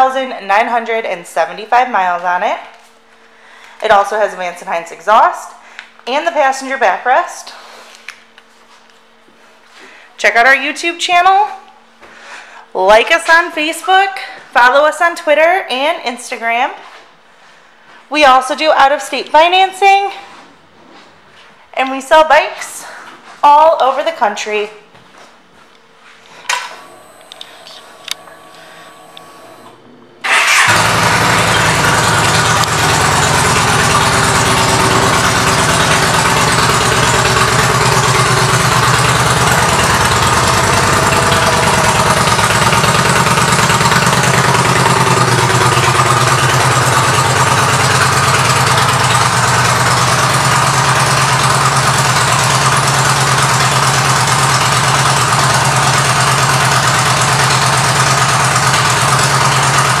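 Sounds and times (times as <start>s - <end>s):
motorcycle engine idling: 30.2s - 60.0s.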